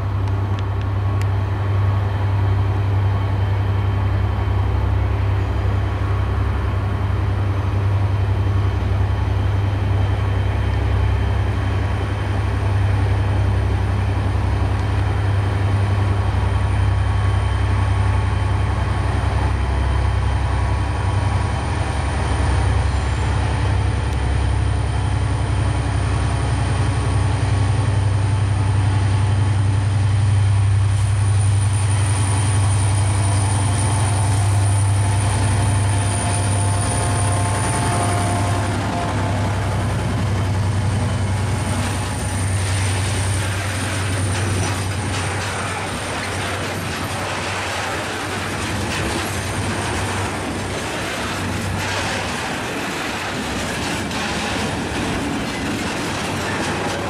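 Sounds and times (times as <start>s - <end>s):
locomotive engine hum: 0.0s - 57.0s
wagon wheels rumbling on rails: 32.5s - 57.0s.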